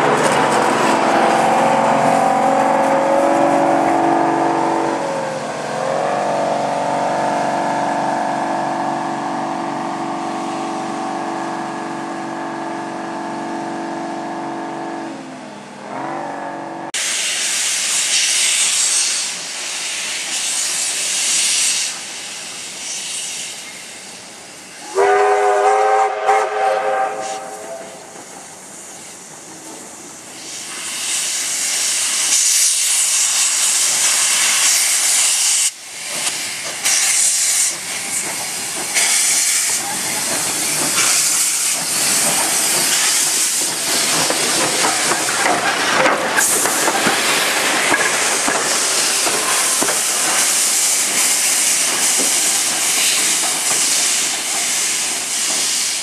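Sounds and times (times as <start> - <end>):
steam whistle blast: 1.0 - 9.0, 24.8 - 28.1
steam hissing from cylinder cocks: 17.0 - 56.0.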